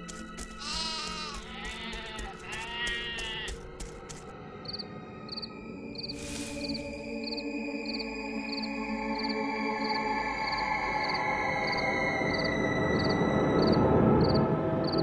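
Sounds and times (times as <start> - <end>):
soft background music: 0.0 - 15.0
sheep bleating: 0.5 - 3.6
crickets chirping: 4.6 - 15.0.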